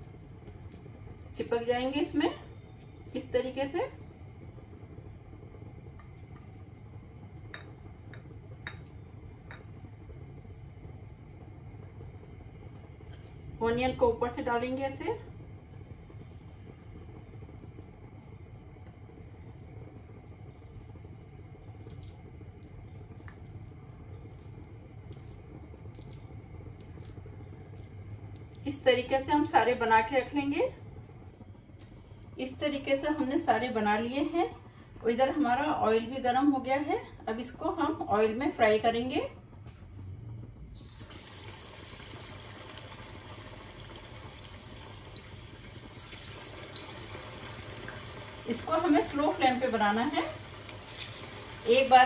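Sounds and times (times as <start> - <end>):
steady low hum: 0.0 - 52.0
small pops of frying oil: 5.9 - 10.6, 15.9 - 29.6, 40.7 - 51.9
oil sizzling in a wok: 40.7 - 52.0.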